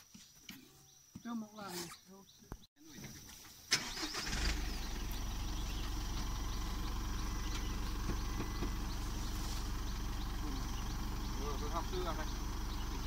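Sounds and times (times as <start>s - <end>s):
diesel engine idling: 3.8s - 13.0s.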